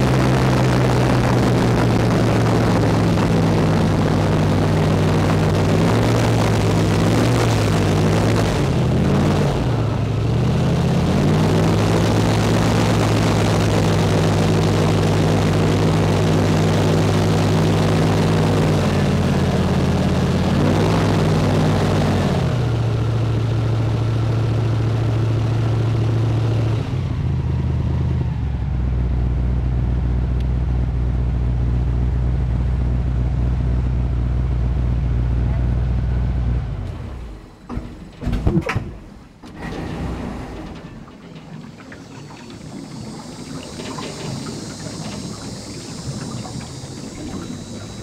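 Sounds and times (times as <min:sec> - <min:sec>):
vehicle engine running: 0:00.0 - 0:48.0
hiss: 0:42.0 - 0:48.0.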